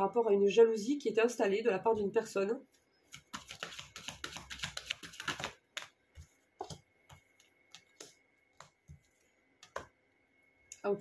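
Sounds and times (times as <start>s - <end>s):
cards being shuffled: 3.1s - 6.0s.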